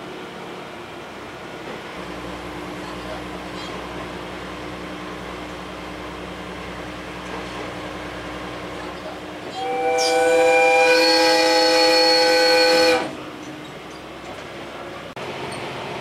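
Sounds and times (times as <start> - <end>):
train running noise: 0.0 - 16.0
train horn chord: 9.5 - 13.2.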